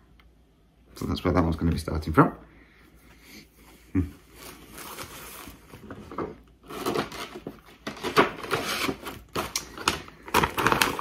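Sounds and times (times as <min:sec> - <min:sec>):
paper rustling and crinkling: 0:04.3 - 0:11.0.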